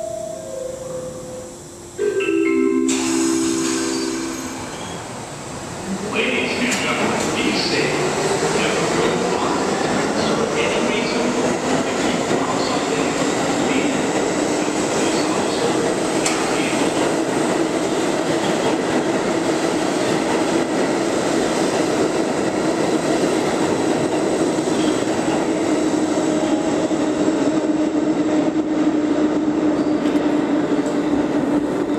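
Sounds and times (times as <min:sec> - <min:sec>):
subway train wheels rumbling on rail: 0:00.0 - 0:31.9.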